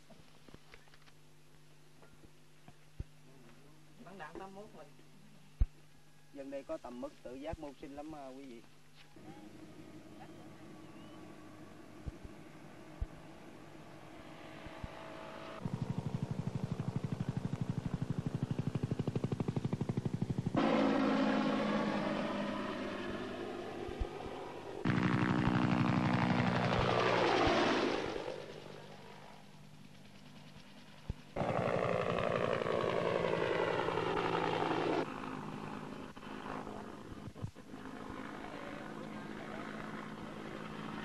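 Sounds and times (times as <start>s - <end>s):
faint hum: 0.0s - 41.0s
helicopter flying past: 9.2s - 41.0s.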